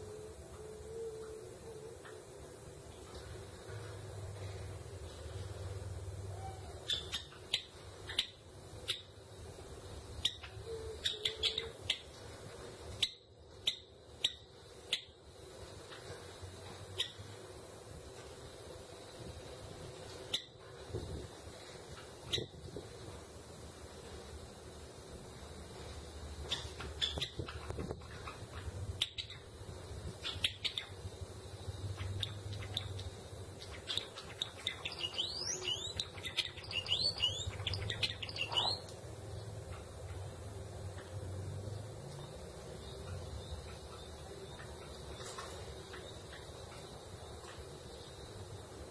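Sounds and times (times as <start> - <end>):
sparrow chip calls: 6.3 - 9.1, 10.2 - 12.1, 26.4 - 38.9.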